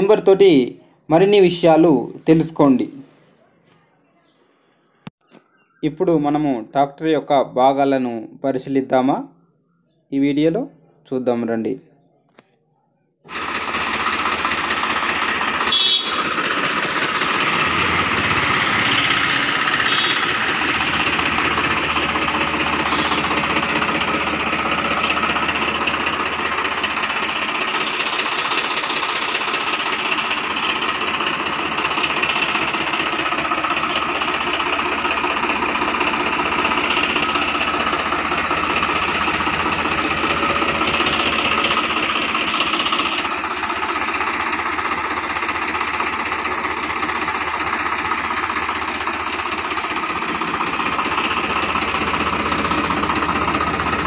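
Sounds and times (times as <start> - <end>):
tractor diesel engine idling: 13.3 - 54.0.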